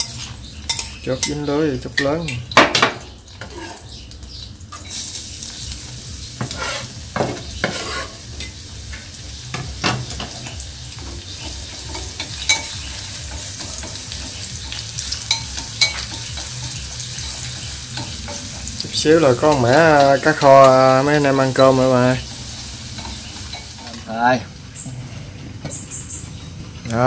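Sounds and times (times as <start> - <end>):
fish sizzling in a pan: 0.0 - 24.8
utensil scraping a pan: 3.4 - 4.0, 6.4 - 8.6.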